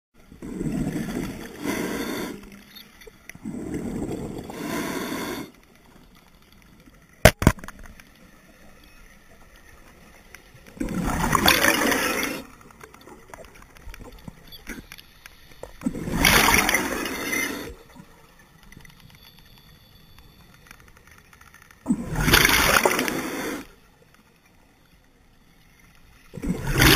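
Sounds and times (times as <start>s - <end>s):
exhaled bubbles gurgling underwater: 0.3s - 2.5s, 3.3s - 5.5s, 10.7s - 14.4s, 15.8s - 18.1s, 26.3s - 26.9s.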